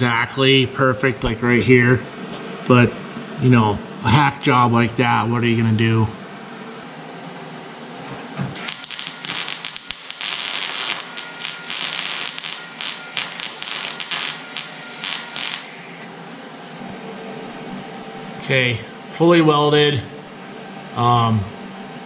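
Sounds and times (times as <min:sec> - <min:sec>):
arc welding crackling: 0:08.5 - 0:16.1.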